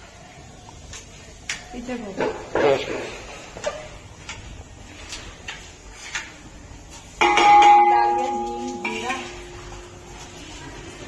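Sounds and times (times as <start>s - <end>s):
metal lid clanking on pot: 7.2s - 9.6s.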